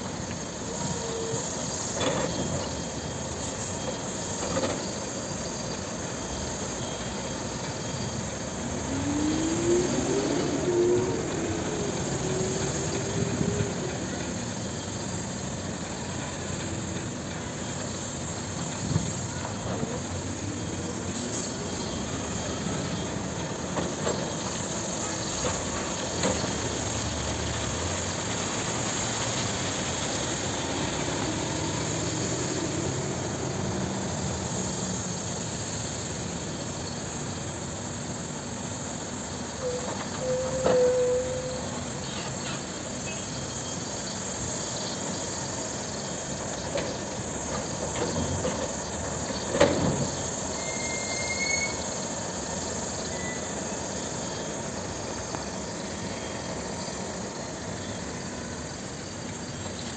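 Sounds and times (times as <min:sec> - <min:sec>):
excavator diesel engine running: 0:00.0 - 0:59.9
brief squeal: 0:39.6 - 0:43.9, 0:50.0 - 0:52.1, 0:53.0 - 0:53.8.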